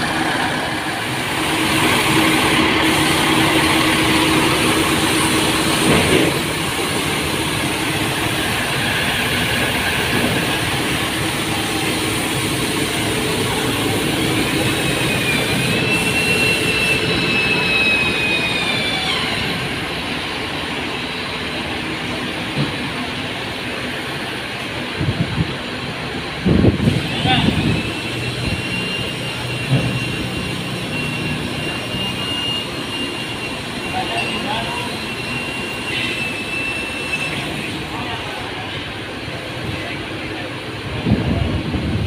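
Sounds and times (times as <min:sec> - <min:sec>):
large diesel engine idling: 0:00.0 - 0:16.3.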